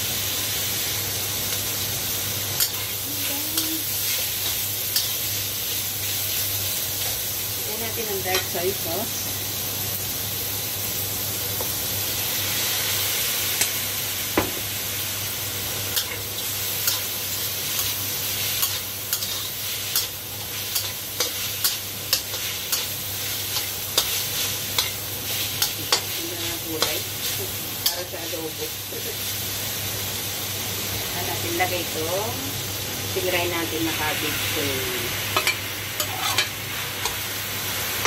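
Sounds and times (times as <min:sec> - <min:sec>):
meat sizzling in hot oil: 0:00.0 - 0:38.0
spatula scraping and clacking on pan: 0:02.6 - 0:05.2, 0:17.7 - 0:28.1, 0:35.3 - 0:37.2.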